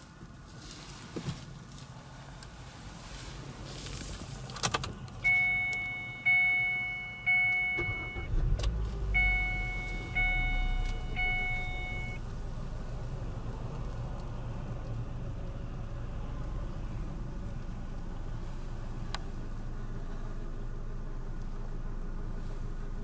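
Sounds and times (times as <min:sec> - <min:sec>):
car engine rumbling: 0:00.0 - 0:23.0
car warning chime: 0:05.2 - 0:08.4, 0:09.1 - 0:12.2.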